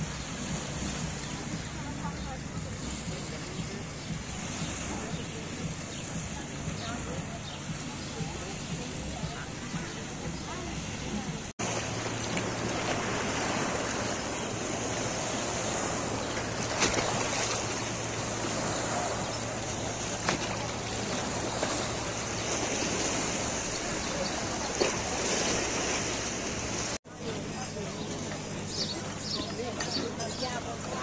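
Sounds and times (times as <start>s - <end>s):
people's voices in background: 0.0s - 31.0s
waves lapping on rocks: 0.0s - 31.0s.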